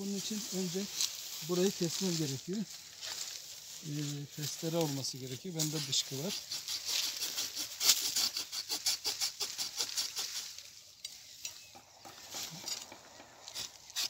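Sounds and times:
hand saw rasping through wood: 6.3s - 10.4s.

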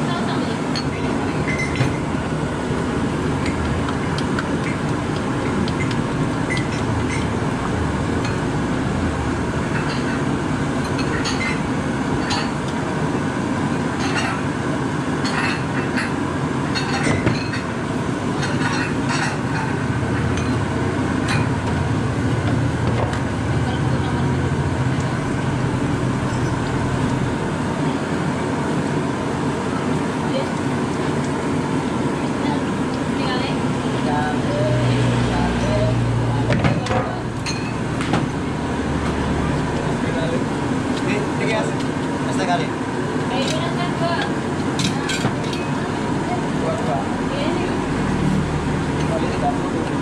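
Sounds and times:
metal spoon clinking on bowls: 37.4s - 37.8s.

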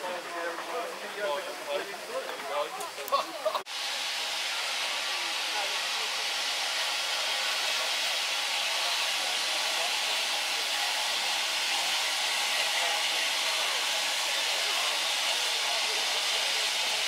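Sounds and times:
steam locomotive hissing: 0.0s - 17.0s.

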